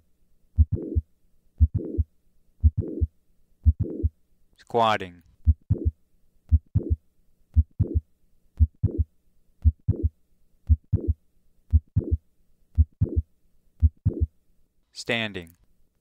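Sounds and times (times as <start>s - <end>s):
heartbeat with click and murmur: 0.6s - 1.0s, 1.6s - 4.1s, 5.4s - 8.0s, 8.6s - 12.2s, 12.8s - 14.3s.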